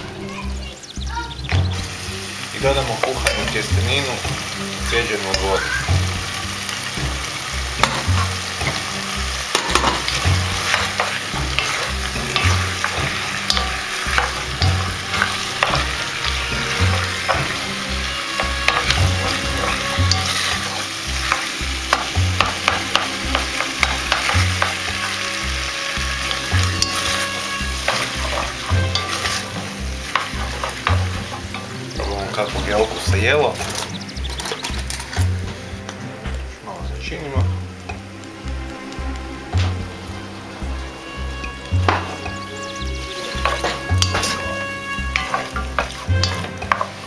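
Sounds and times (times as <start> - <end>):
frying sizzle: 0.0 - 47.0
spoon stirring food in a pot: 6.6 - 35.2, 40.8 - 47.0.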